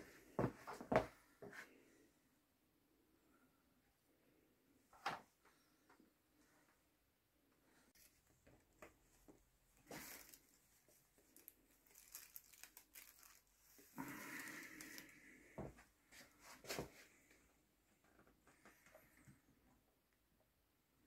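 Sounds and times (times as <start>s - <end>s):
crinkling and rustling: 7.9s - 19.3s.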